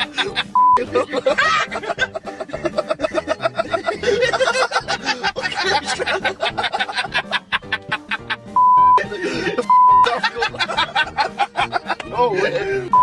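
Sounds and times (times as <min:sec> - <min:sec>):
young men laughing: 0:00.0 - 0:13.0
censor bleeps: 0:08.6 - 0:09.0, 0:09.7 - 0:10.0.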